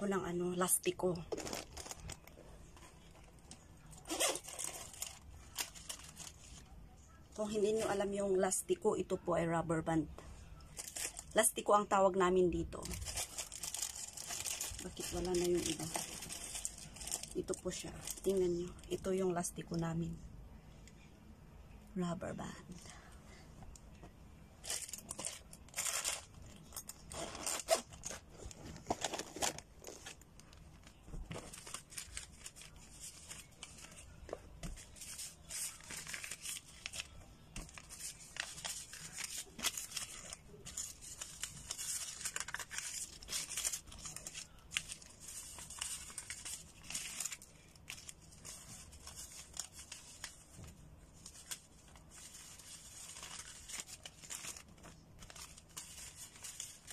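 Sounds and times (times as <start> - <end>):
paper banknotes rustling: 51.2 - 56.9.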